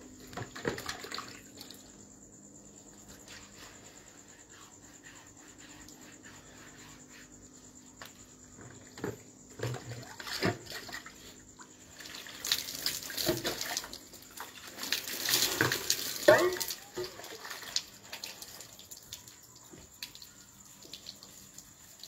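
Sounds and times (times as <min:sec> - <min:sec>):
water sloshing in a bucket: 0:00.0 - 0:02.2, 0:08.5 - 0:22.0
water splashing onto concrete: 0:12.0 - 0:19.3
water splashes: 0:12.0 - 0:19.4.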